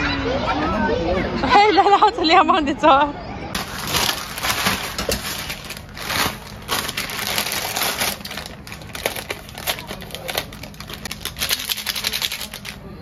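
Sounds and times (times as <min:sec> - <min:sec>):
plastic packets crinkling: 0:03.6 - 0:12.8.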